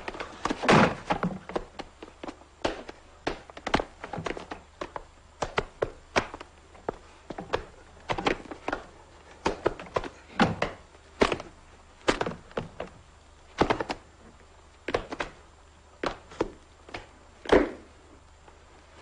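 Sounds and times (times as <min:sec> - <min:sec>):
bodies knocking against wooden furniture: 0:00.0 - 0:11.5
blows and thuds of fistfight: 0:00.0 - 0:12.9, 0:13.5 - 0:14.0, 0:16.0 - 0:17.9.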